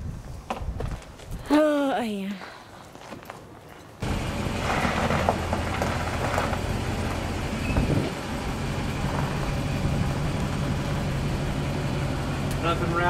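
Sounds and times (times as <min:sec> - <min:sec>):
truck engine idling: 0:04.0 - 0:13.0.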